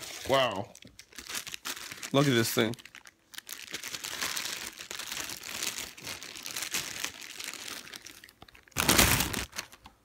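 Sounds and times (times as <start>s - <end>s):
plastic wrapping crinkling: 0.0s - 10.0s.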